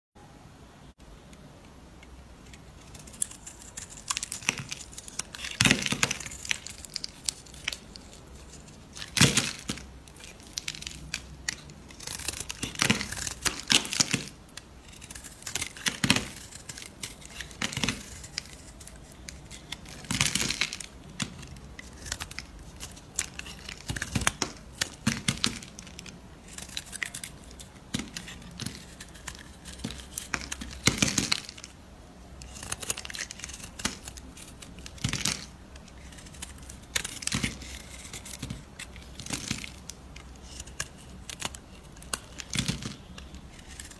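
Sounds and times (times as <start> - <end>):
knife blade carving soap: 2.5 - 31.6.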